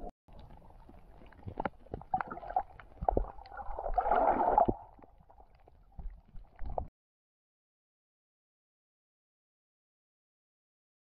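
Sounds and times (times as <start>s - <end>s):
underwater clicks and knocks: 0.0s - 6.9s.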